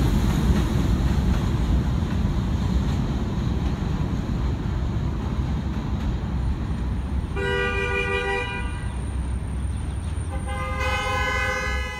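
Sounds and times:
train rumble: 0.0s - 11.9s
train horn blast: 7.3s - 9.0s, 10.3s - 11.9s.

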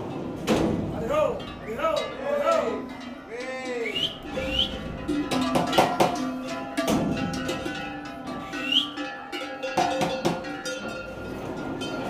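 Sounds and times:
cattle bells clanking: 0.0s - 12.0s
rising whistle-like chirp: 3.8s - 4.9s, 8.6s - 9.0s.

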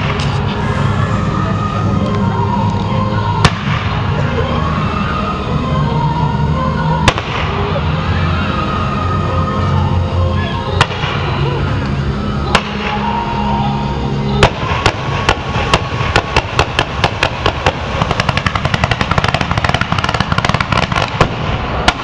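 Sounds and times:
firework bangs: 0.0s - 0.6s, 3.4s - 4.2s, 7.0s - 7.8s, 10.8s - 11.4s, 12.5s - 13.2s, 14.4s - 22.0s
music with deep bass: 0.0s - 22.0s.

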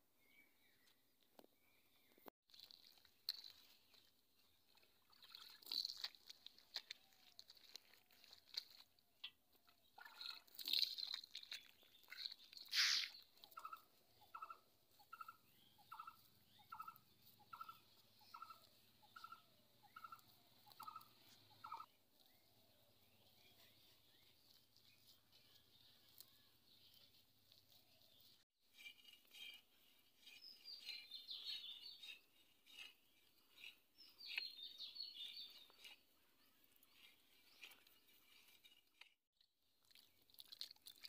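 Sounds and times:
hands slapping wet mud: 5.3s - 9.3s.

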